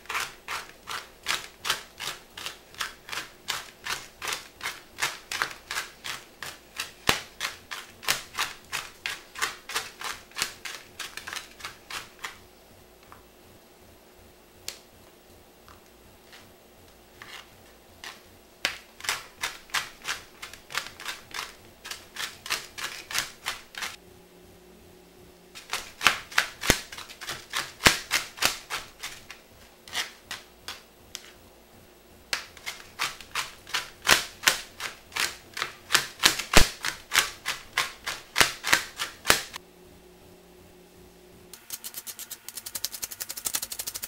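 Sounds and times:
knife chopping on cutting board: 32.4 - 39.6.

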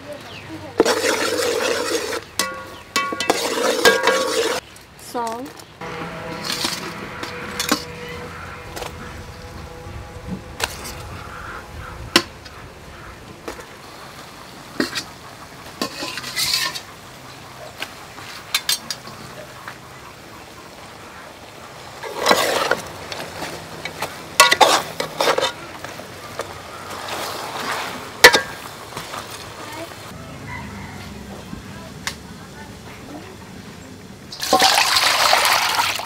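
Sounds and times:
spoon scraping pot: 0.8 - 4.6, 5.8 - 8.9, 22.0 - 25.6
spoon clinking against pot: 2.4 - 4.6.

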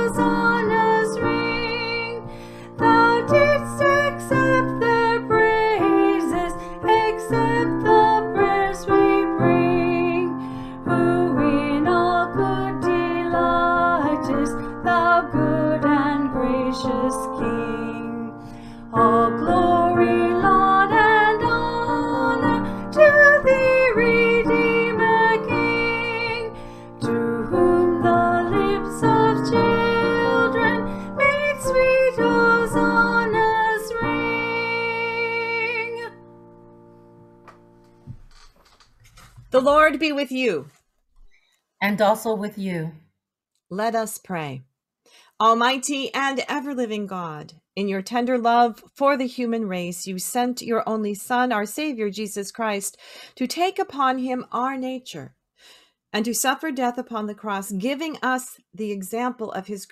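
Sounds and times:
woman singing a hymn: 0.0 - 36.2
piano accompaniment: 0.0 - 38.5.

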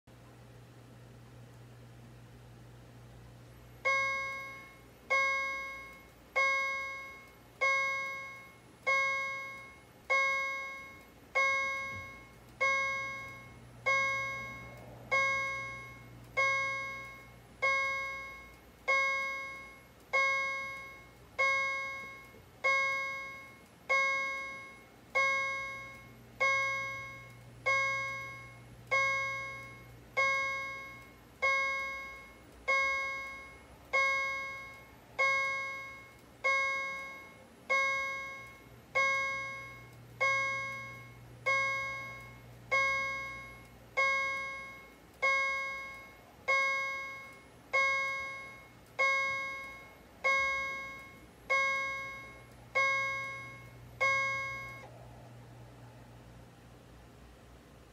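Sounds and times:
fire alarm chime: 3.8 - 54.9.

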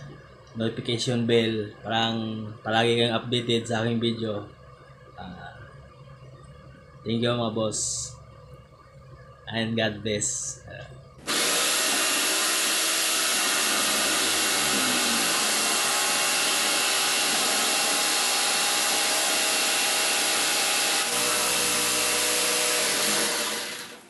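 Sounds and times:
jigsaw cutting wood: 11.2 - 24.0.

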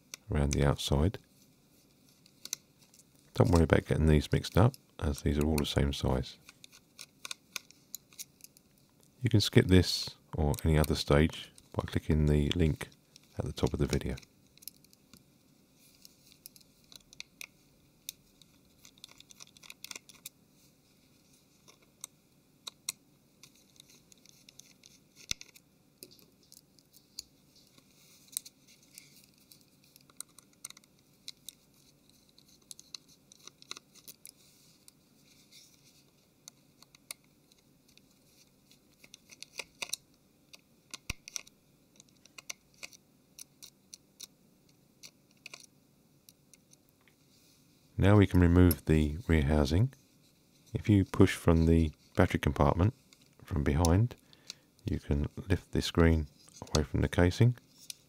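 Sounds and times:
screwdriver clicks and scratches: 6.4 - 8.6, 16.0 - 20.4, 21.6 - 35.8, 36.5 - 44.3, 45.0 - 45.7
phone being handled: 15.9 - 20.4, 21.2 - 45.7.

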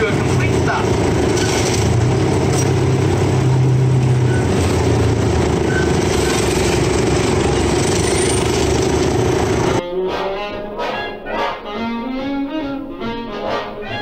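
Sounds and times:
miniature train engine droning: 0.0 - 9.8.

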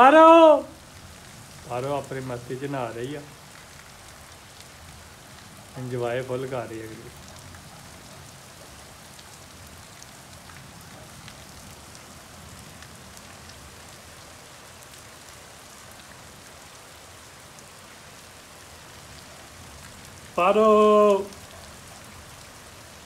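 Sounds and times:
person calling out: 0.0 - 0.8, 20.4 - 21.4
heavy rain on roofs: 0.0 - 23.0.

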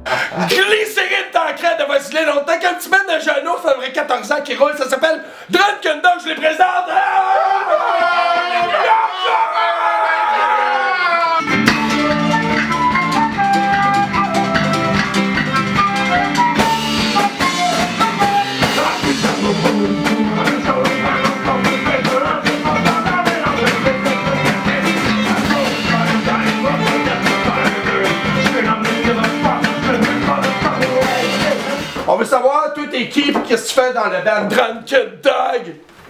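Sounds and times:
flute melody: 11.4 - 31.9
electric bass: 11.4 - 32.0
acoustic guitar: 11.4 - 32.1
drum kit: 11.4 - 32.2
person singing: 16.1 - 32.1.

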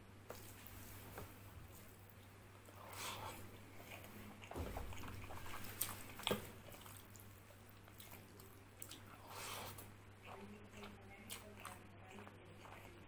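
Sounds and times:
fingers squishing rice and curry: 0.3 - 13.0
chewing: 1.7 - 13.0.

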